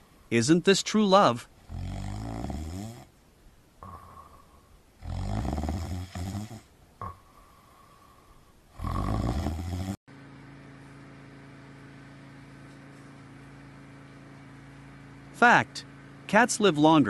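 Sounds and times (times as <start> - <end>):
steady low hum: 0.0 - 17.0
loud deep snores: 1.6 - 3.1, 3.8 - 8.0, 8.7 - 10.0.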